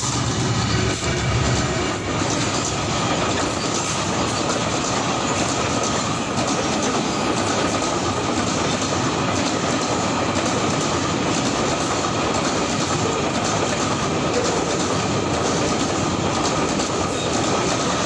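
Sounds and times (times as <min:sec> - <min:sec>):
locomotive engine rumble: 0:00.0 - 0:06.0
freight train wheels clattering: 0:00.0 - 0:18.0.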